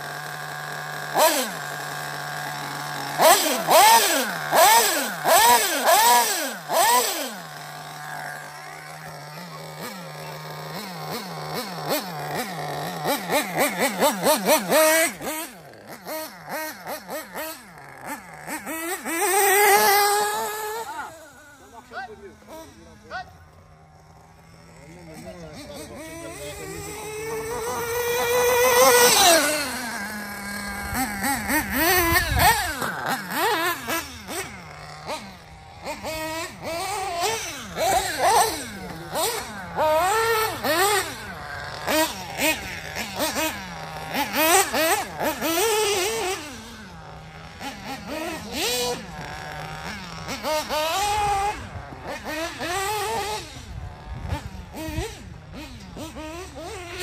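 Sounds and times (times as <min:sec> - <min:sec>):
high engine whine: 0:00.0 - 0:57.0
nitro engine revving: 0:00.0 - 0:57.0.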